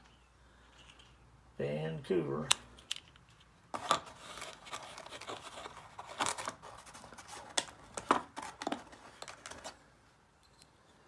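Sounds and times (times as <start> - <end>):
plastic capsules clicking and scraping: 0.6 - 1.3, 2.5 - 6.6.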